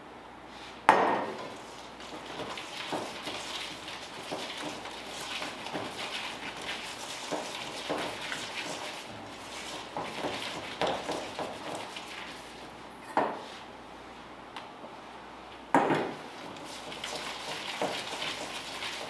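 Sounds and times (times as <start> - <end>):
hands squishing dough in bowl: 1.2 - 12.8, 16.4 - 19.0.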